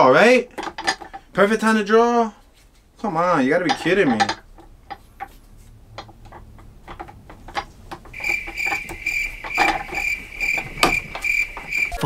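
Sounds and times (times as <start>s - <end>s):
cricket chirping: 8.2s - 12.0s.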